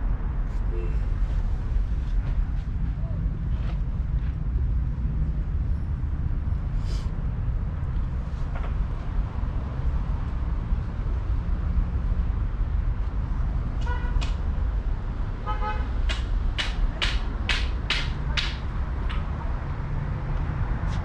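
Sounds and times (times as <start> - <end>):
traffic rumble: 0.0 - 21.0
sharp clacks: 16.1 - 19.3.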